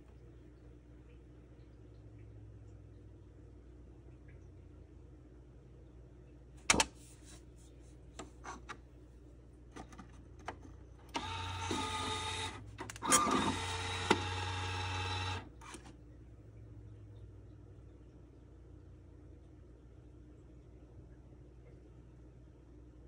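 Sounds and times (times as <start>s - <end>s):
time card click into slot: 6.7s - 6.9s
time clock mechanism whirring: 11.1s - 15.9s.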